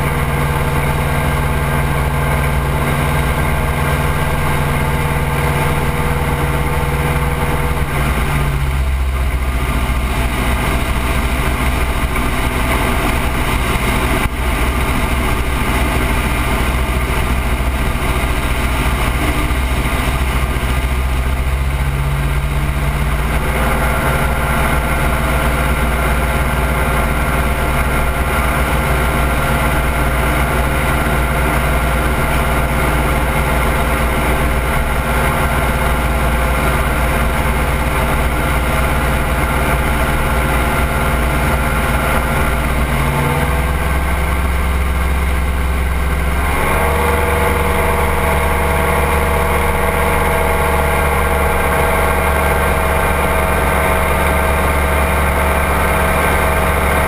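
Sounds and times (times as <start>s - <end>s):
aircraft engine running: 0.0s - 57.0s.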